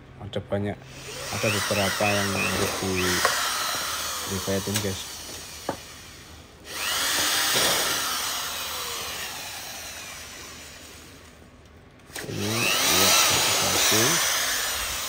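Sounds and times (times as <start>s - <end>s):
power drill drilling metal: 0.9s - 11.4s, 12.1s - 15.0s.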